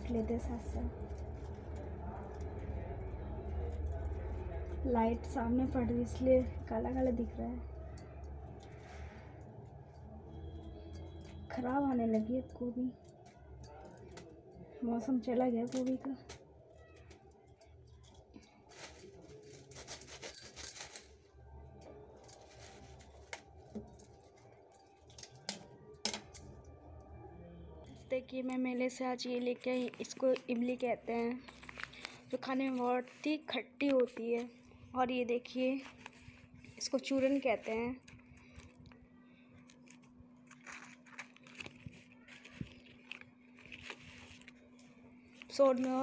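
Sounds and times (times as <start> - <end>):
steady low hum: 0.0 - 16.4
newspaper crinkling: 22.1 - 24.5, 29.2 - 34.6, 35.4 - 39.0, 39.6 - 46.0.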